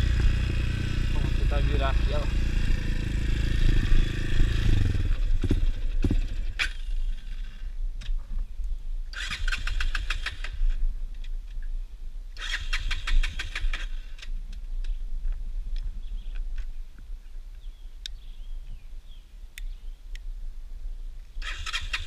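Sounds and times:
motorcycle engine running: 0:00.0 - 0:07.8.

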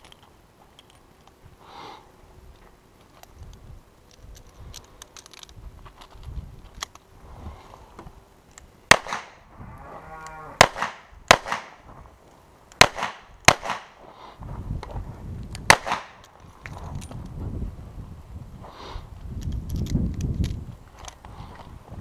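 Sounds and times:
handgun shots with echo: 0:08.9 - 0:09.4, 0:10.6 - 0:11.8, 0:12.8 - 0:14.0, 0:15.7 - 0:16.2.

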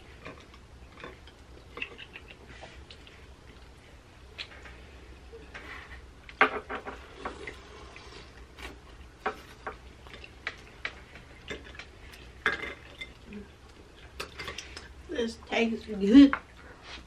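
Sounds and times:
wet chewing smacks and clicks: 0:00.1 - 0:04.8.

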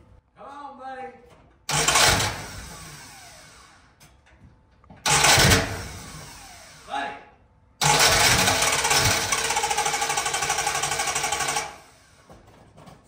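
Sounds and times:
starter cranking engine: 0:01.7 - 0:03.6, 0:05.1 - 0:06.8, 0:07.8 - 0:11.9.

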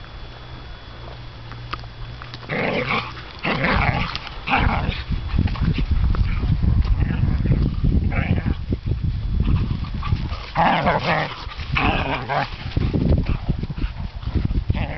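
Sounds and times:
dense low rumble: 0:00.0 - 0:14.9
dogs growling: 0:02.3 - 0:08.6, 0:09.4 - 0:14.9.

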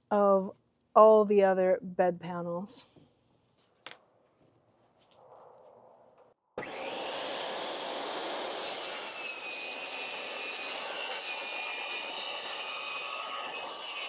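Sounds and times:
table saw cutting wood: 0:06.6 - 0:14.0.

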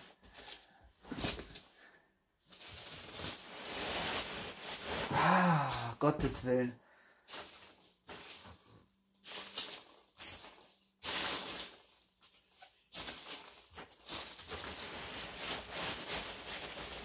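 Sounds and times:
packing peanuts rustling: 0:02.4 - 0:05.9, 0:07.2 - 0:17.0.

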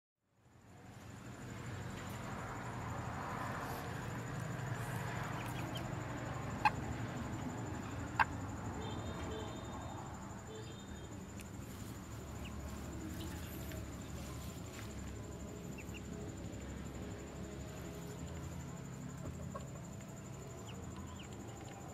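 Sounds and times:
ducklings peeping: 0:05.0 - 0:05.9.

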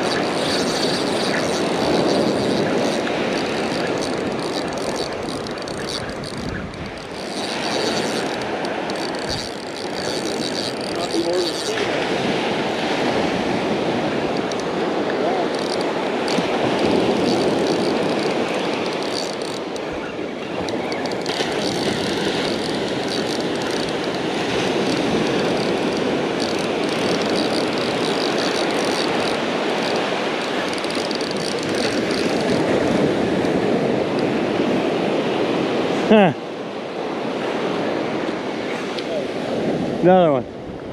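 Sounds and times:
surf breaking on beach: 0:00.0 - 0:19.0
wind rumbling on microphone: 0:00.0 - 0:40.9.

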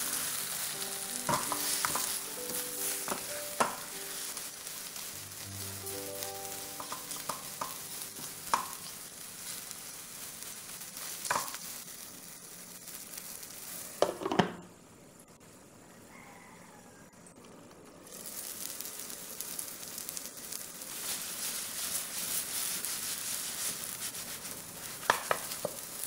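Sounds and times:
egg sizzling in frying pan: 0:00.0 - 0:15.3, 0:17.8 - 0:26.0
spatula tapping and scraping pan: 0:01.2 - 0:05.0, 0:06.5 - 0:09.0, 0:11.2 - 0:11.6, 0:24.8 - 0:25.9.

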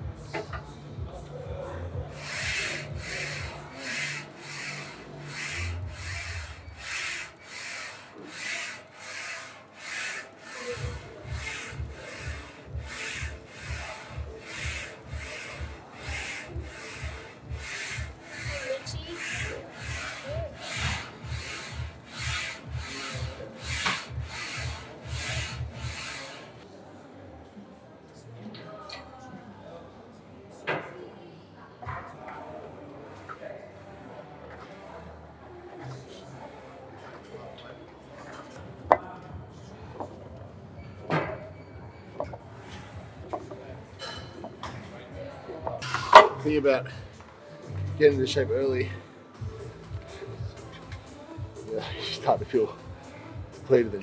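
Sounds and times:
brushed shaker-like beat: 0:02.0 - 0:26.5.

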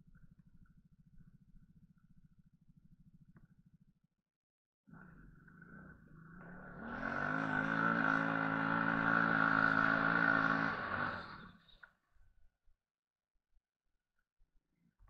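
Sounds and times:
quad engine revving: 0:04.9 - 0:11.8.

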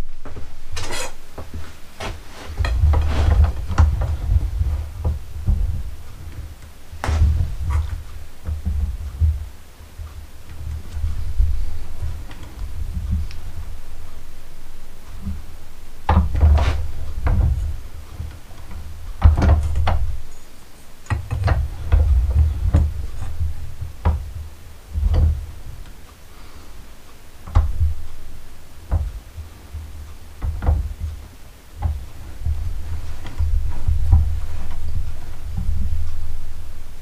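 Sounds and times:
metal pipe knocks and clunks: 0:00.2 - 0:09.5
dull thump through bench: 0:01.4 - 0:09.5, 0:16.1 - 0:20.3.

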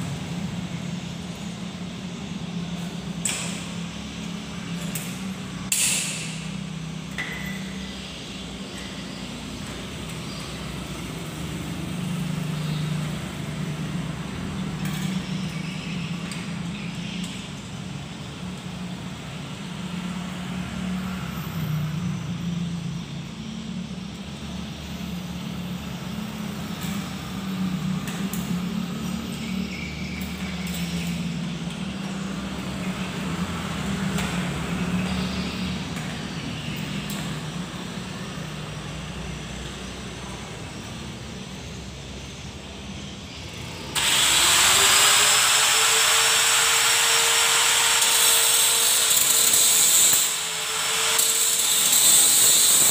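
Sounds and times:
metal ringing ping: 0:07.1 - 0:07.9.

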